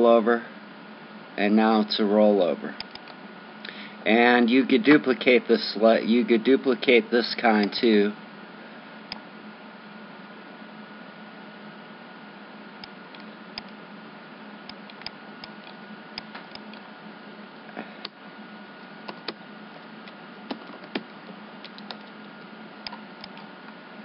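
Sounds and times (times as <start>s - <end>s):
steady hum and hiss: 0.0s - 24.0s
keyboard typing: 20.0s - 22.2s
computer mouse clicks: 21.7s - 22.1s, 22.8s - 23.5s.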